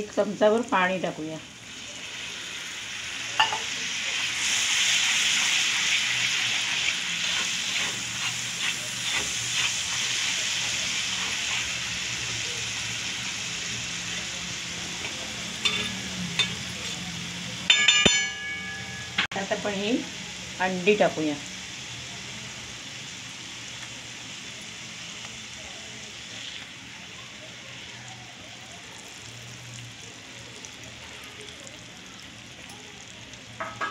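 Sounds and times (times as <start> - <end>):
spice paste sizzling in hot oil: 0.0 - 33.9
spatula scraping pan: 5.4 - 11.8
brief ringing clink: 17.7 - 19.3.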